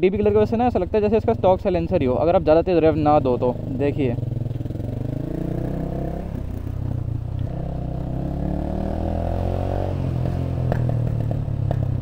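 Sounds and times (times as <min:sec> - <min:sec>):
motorcycle engine revving: 0:00.2 - 0:12.0.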